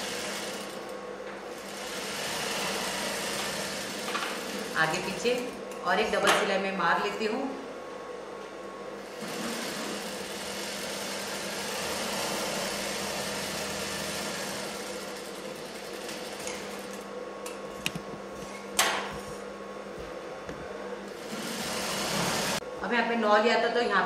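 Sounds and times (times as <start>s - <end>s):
sewing machine stitching: 9.1s - 16.9s, 21.2s - 22.6s.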